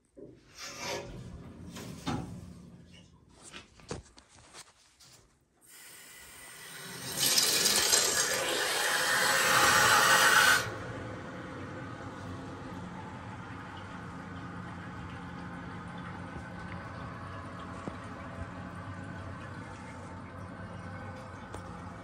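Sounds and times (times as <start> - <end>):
water rushing through pipes: 5.7 - 22.0.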